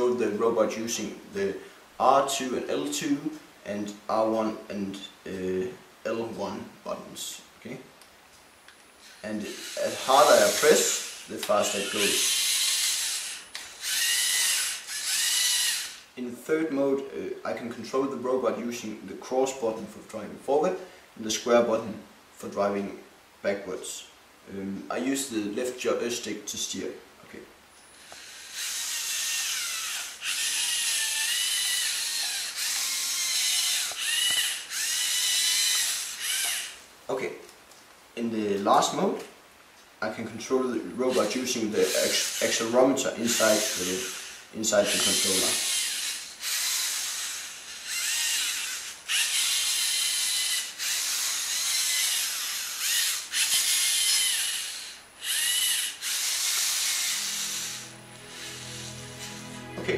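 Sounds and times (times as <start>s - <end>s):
toy robot motors whirring: 9.0s - 16.1s, 27.8s - 36.8s, 41.1s - 59.6s.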